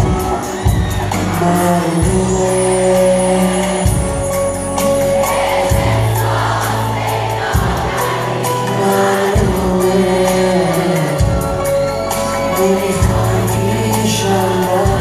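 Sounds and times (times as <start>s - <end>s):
man singing into a microphone: 0.0s - 4.6s, 8.4s - 15.0s
band playing: 0.0s - 15.0s
crowd singing along: 0.0s - 15.0s.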